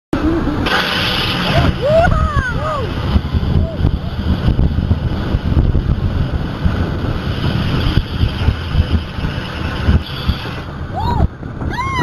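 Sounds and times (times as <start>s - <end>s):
roller coaster train rumbling on track: 0.2s - 12.0s
wind buffeting microphone: 0.2s - 12.0s.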